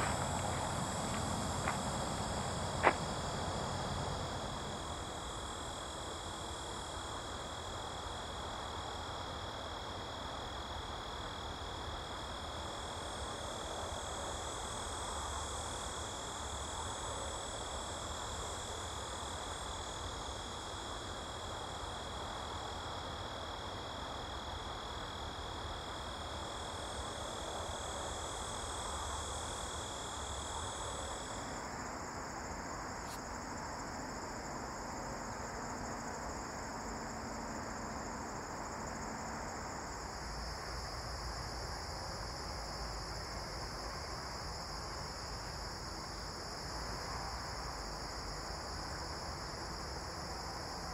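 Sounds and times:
crickets and insects trilling: 0.0 - 50.9.

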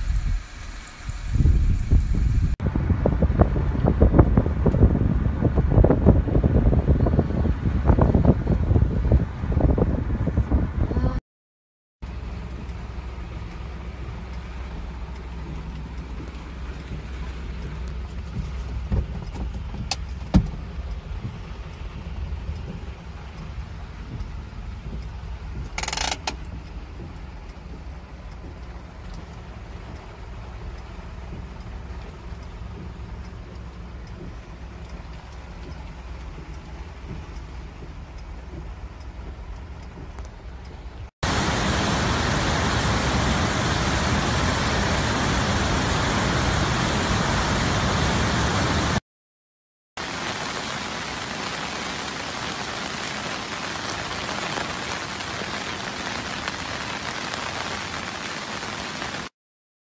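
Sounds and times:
heavy rain hiss: 0.0 - 8.8, 41.2 - 49.0, 50.0 - 59.3
rain heard from inside a car: 0.0 - 11.2, 12.1 - 49.0, 50.0 - 59.3.

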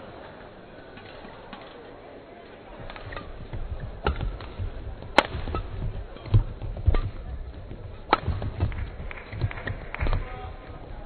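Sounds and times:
racket hitting shuttlecock: 2.8 - 10.4.

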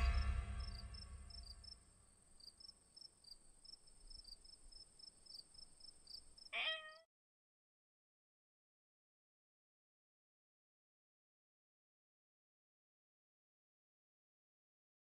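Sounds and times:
crickets chirping: 0.0 - 6.5
cat meowing: 6.6 - 7.1.

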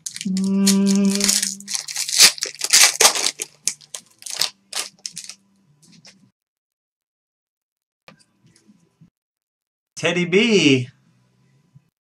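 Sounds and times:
plastic sleeve crinkling: 0.0 - 5.4.

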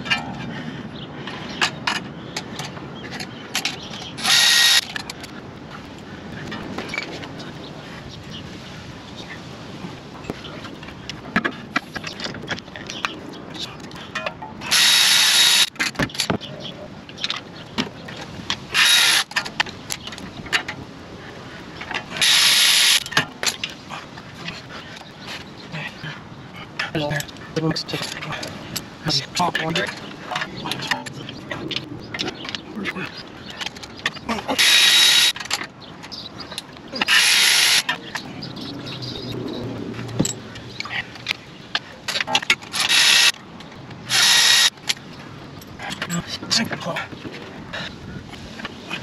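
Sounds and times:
power tool whirring: 4.2 - 4.9, 14.7 - 15.7, 18.7 - 19.3, 22.2 - 23.0, 34.5 - 35.4, 37.0 - 37.9, 42.7 - 43.3, 44.1 - 44.8
ratchet clicking: 4.2 - 5.0, 14.7 - 15.8, 18.7 - 19.4, 34.6 - 35.4, 37.0 - 37.9, 42.7 - 43.4, 44.1 - 44.8.

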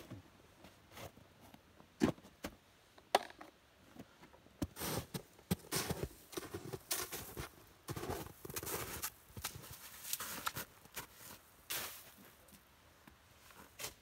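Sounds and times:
footsteps crunching through snow: 4.6 - 12.6, 13.4 - 14.0.

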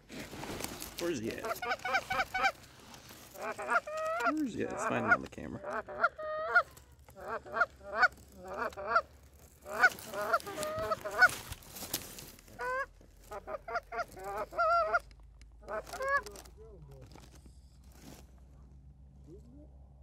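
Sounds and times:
geese honking and clucking: 1.0 - 11.6, 12.5 - 16.5.

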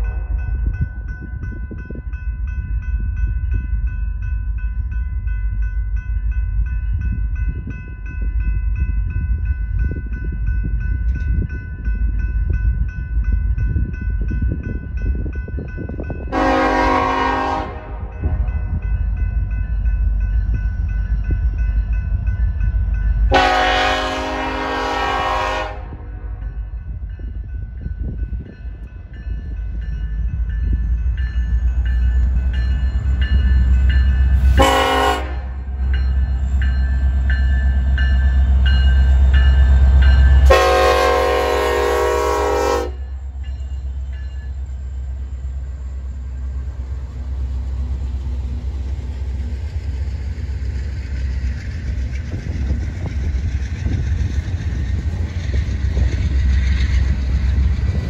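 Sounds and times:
train rumbling: 0.0 - 58.0
diesel locomotive horn: 16.3 - 18.7, 23.3 - 26.4, 34.4 - 35.7, 40.4 - 43.1.

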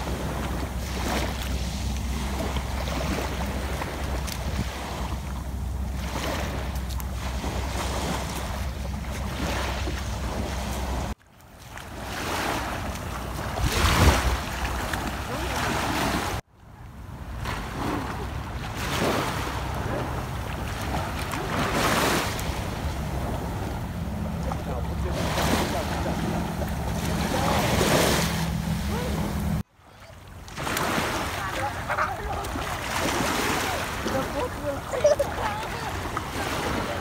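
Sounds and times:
wind rumbling on microphone: 0.0 - 11.2, 12.7 - 16.4
waves lapping on sandy shore: 0.0 - 37.0.

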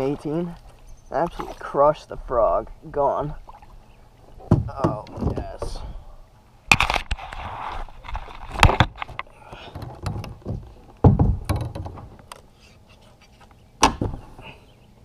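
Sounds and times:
hollow knocks on plastic hull: 4.5 - 5.6, 10.0 - 12.1.

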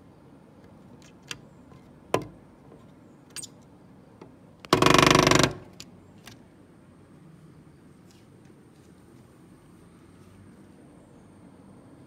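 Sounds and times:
woodpecker drumming on wood: 4.7 - 5.8.

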